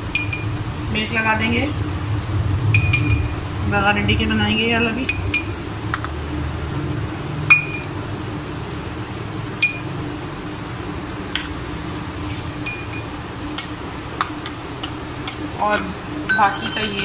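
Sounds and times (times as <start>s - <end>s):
steady low hum: 0.0s - 17.0s
kitchenware clinking: 16.3s - 17.0s.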